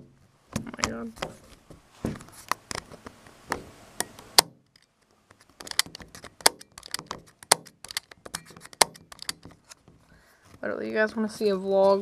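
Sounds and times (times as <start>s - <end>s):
sharp clicks and taps: 2.5s - 10.0s.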